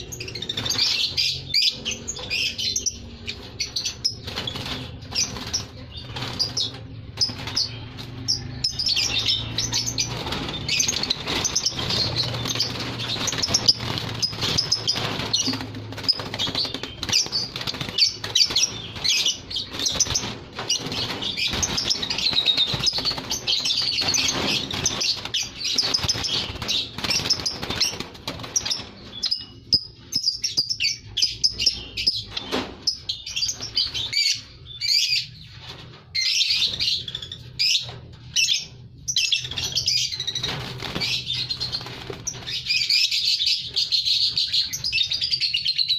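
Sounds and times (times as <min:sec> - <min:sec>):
lovebirds chirping: 0:00.0 - 0:45.9
wings fluttering: 0:02.9 - 0:29.8, 0:39.4 - 0:43.9.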